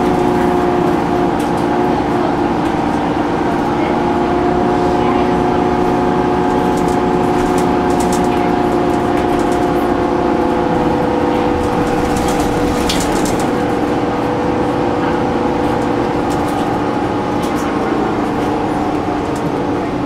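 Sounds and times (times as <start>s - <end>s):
bus engine and transmission whine: 0.0s - 20.0s
road rumble: 0.0s - 20.0s
light rattles in cabin: 6.5s - 10.2s, 11.3s - 14.4s.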